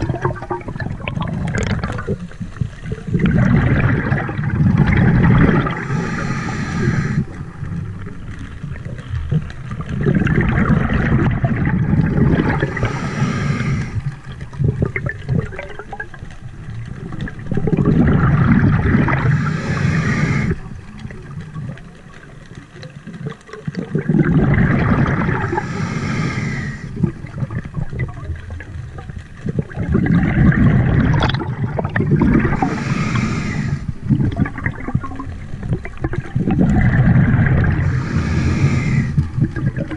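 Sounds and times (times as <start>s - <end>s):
exhaled bubbles gushing: 0.0s - 39.9s
regulator breath hiss: 5.6s - 7.4s, 12.5s - 14.1s, 19.2s - 20.7s, 25.4s - 27.0s, 32.5s - 34.0s, 37.8s - 39.4s.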